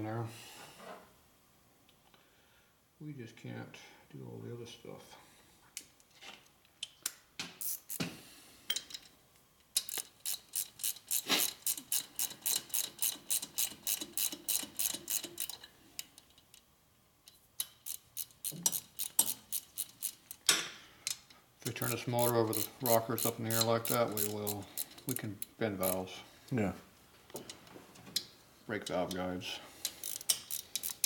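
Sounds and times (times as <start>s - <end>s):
hand ratchet clicking: 7.6s - 8.0s, 9.7s - 16.6s, 17.6s - 20.5s, 21.1s - 26.0s, 29.8s - 31.0s.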